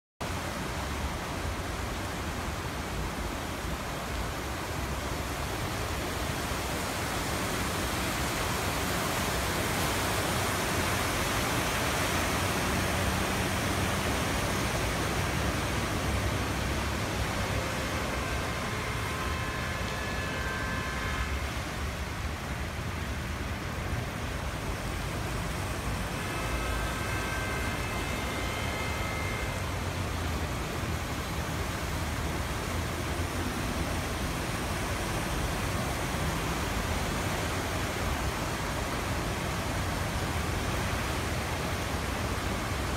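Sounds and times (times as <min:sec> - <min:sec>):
water rushing and splashing: 0:00.2 - 0:42.9
faint high tones: 0:12.9 - 0:22.6, 0:25.3 - 0:30.0.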